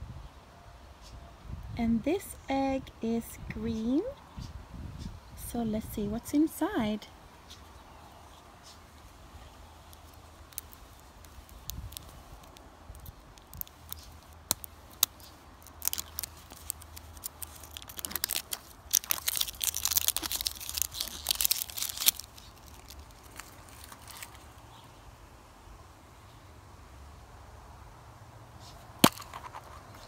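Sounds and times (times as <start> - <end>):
wrapper crinkling and tearing: 9.9 - 24.6.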